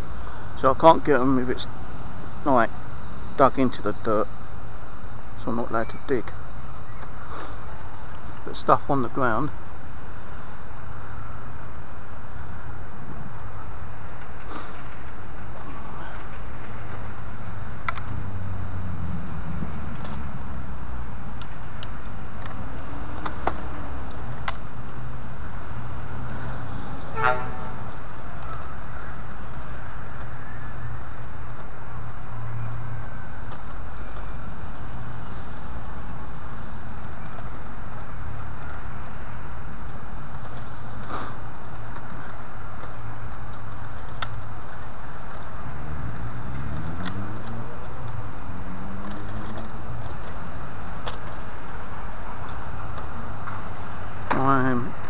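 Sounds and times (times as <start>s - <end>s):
background hum: 0.0s - 55.0s
low outdoor rumble: 0.0s - 55.0s
magnetic sweeper rolling on grass: 11.2s - 54.3s
short horn toot: 27.0s - 27.9s.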